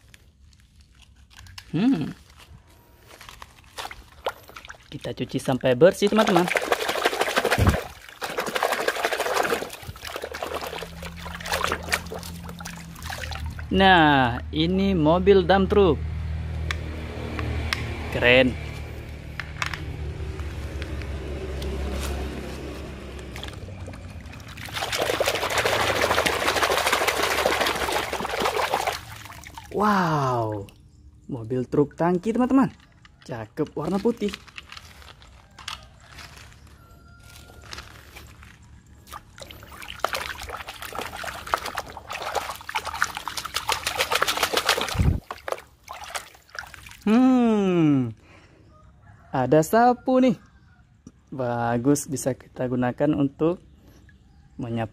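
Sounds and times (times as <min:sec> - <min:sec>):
water sloshing in a basin: 0:02.2 - 0:14.3, 0:20.2 - 0:31.2, 0:32.2 - 0:47.1.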